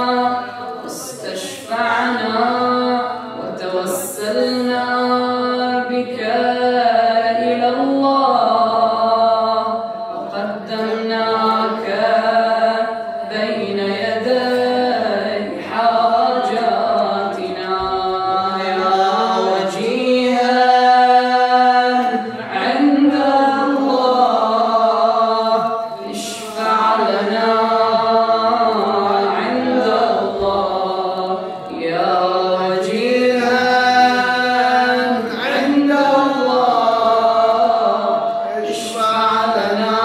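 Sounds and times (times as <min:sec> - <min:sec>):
man chanting melismatic melody: 0:10.4 - 0:31.2, 0:33.0 - 0:40.0.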